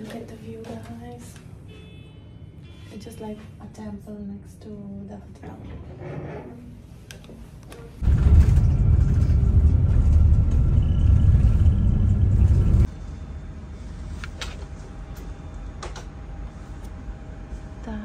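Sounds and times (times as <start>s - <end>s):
bus engine and road rumble: 7.8s - 18.0s
airliner cabin hum: 8.0s - 18.0s.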